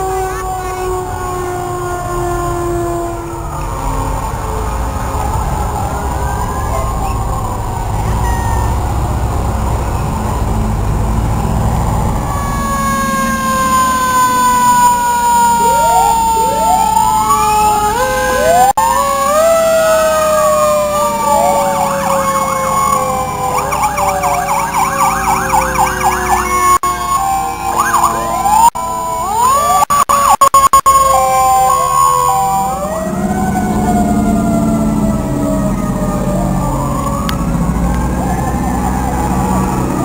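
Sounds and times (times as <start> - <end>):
fast yelping siren: 0.0 - 3.0, 5.8 - 8.8, 12.2 - 40.0
low engine rumble: 0.0 - 18.8, 32.6 - 40.0
fire truck sirens wailing: 0.0 - 40.0.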